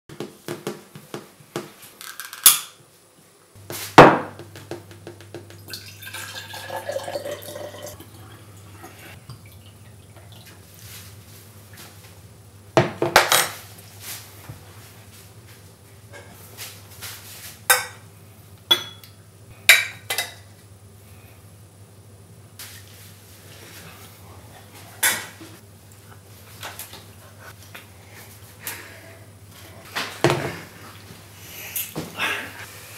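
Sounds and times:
water pouring into a glass: 5.7 - 10.4.

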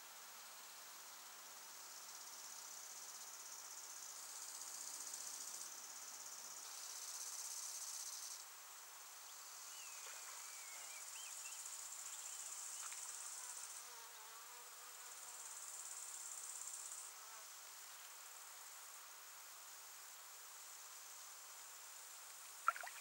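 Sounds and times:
high-pitched insect song: 2.0 - 8.6, 9.2 - 14.0, 22.2 - 23.0.

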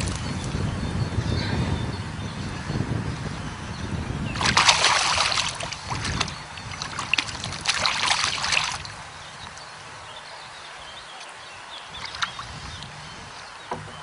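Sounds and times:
fish splashing in water: 4.3 - 9.0, 11.9 - 12.7.

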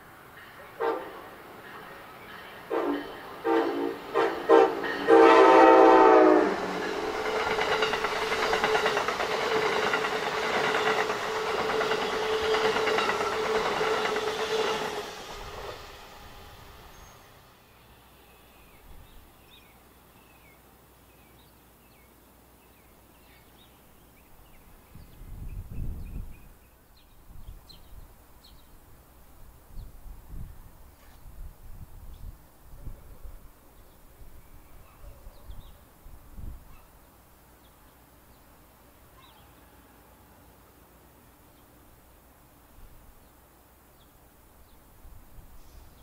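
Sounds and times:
faint background noise: 14.5 - 46.0
small birds chirping: 16.9 - 28.8, 39.1 - 39.6
wind gusts on microphone: 24.6 - 26.6, 29.4 - 36.8.

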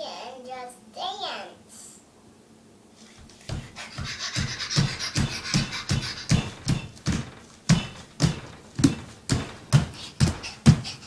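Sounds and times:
child stomping boots on hard floor: 3.2 - 11.0.

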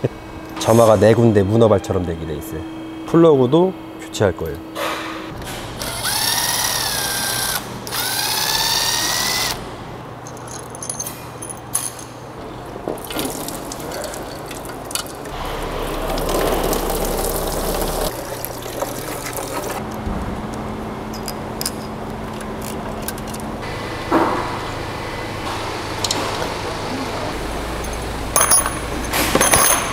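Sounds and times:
cordless drill motor whine: 5.8 - 9.6
metal clinks and rattles: 10.2 - 12.2, 13.1 - 15.3, 27.8 - 29.9.

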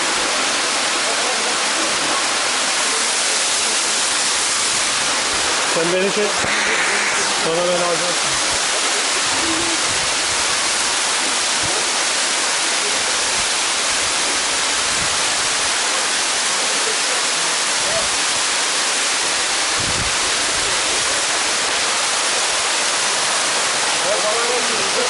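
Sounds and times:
waterfall rushing over rock: 0.0 - 25.0.

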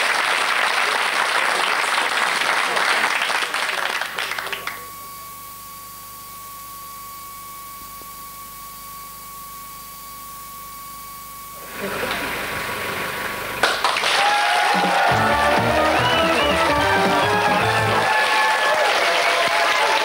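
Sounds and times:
faint mains hum: 0.0 - 14.6.

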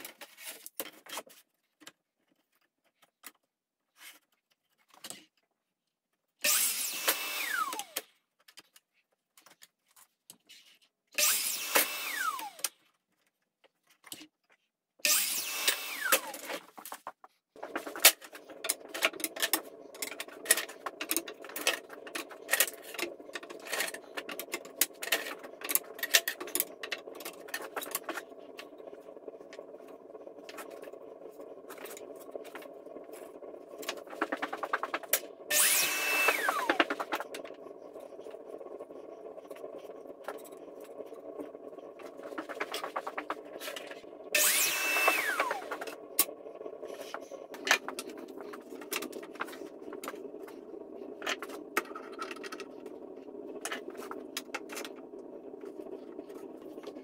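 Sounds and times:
miter saw cutting wood: 6.4 - 8.0, 11.2 - 12.7, 15.0 - 16.6, 17.6 - 40.4, 42.1 - 50.0
sharp clicks and knocks: 16.1 - 44.1.

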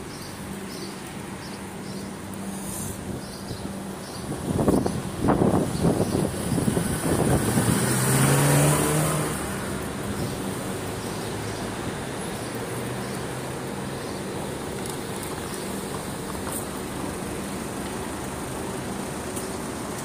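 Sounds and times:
low hum of street traffic: 0.0 - 20.0
car passing by: 6.0 - 14.0.

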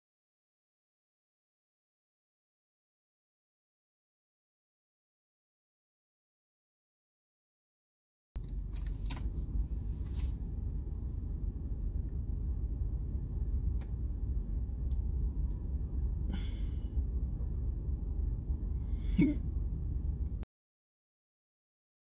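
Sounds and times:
low rumble inside car cabin: 8.4 - 20.5.

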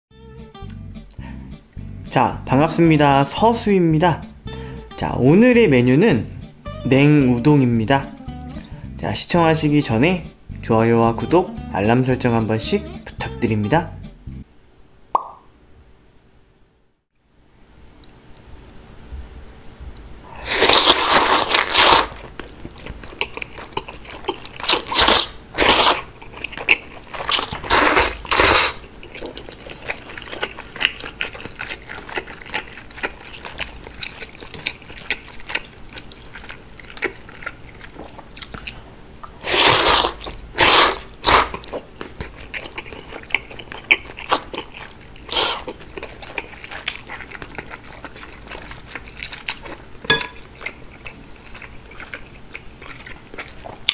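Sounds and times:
wet chewing: 20.5 - 53.9
slurping noodles: 39.4 - 41.6.

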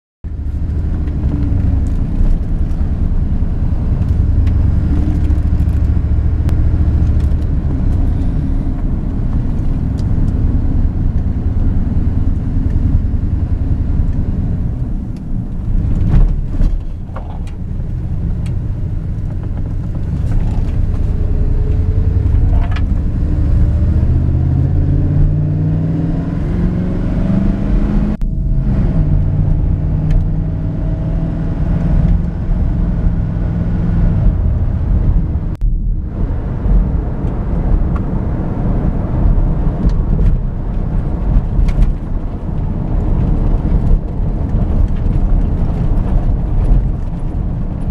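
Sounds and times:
pickup truck engine and road noise: 0.2 - 47.9.

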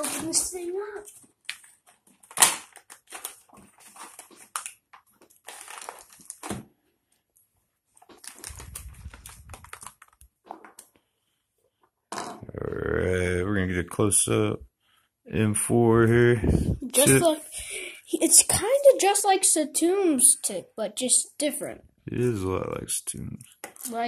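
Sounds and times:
packaging being torn and crinkled: 1.4 - 6.6, 8.0 - 10.9.

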